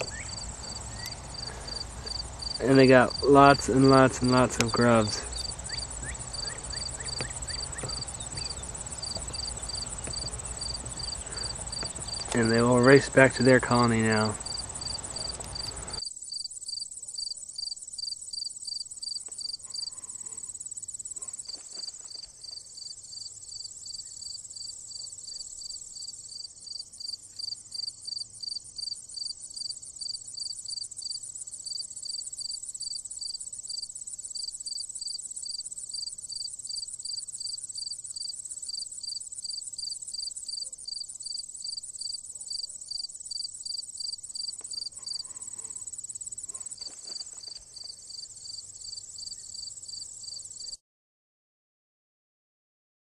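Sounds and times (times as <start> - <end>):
high insect chirp: 0.0 - 50.8
insect trill: 0.0 - 50.8.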